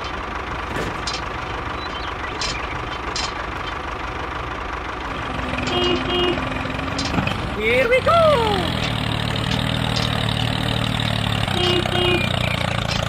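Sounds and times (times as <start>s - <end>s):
tractor engine idling: 0.0s - 13.0s.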